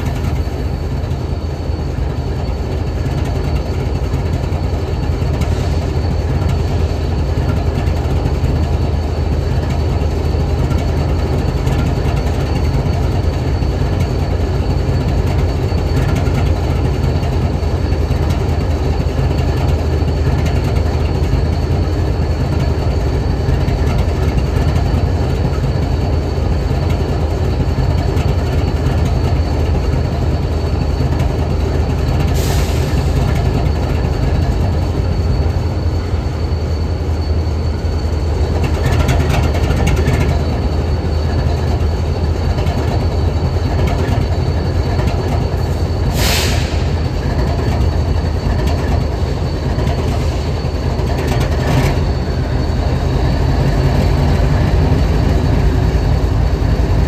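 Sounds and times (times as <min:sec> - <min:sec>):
faint high whine: 0:00.0 - 0:57.0
locomotive engine idling: 0:00.0 - 0:57.0
short air hisses: 0:32.4 - 0:33.2, 0:46.0 - 0:47.0.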